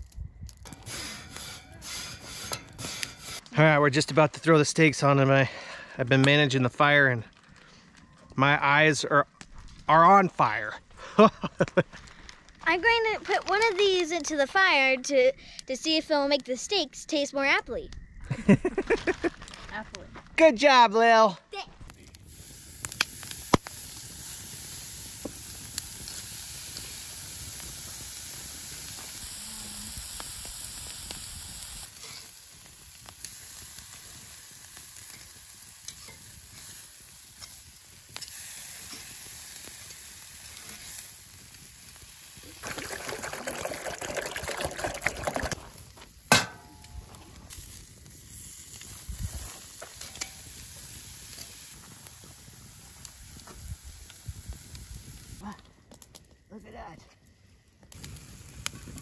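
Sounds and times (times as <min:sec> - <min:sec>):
steaks sizzling on a grill: 0:00.7 - 0:03.4, 0:22.1 - 0:42.6, 0:47.5 - 0:55.4.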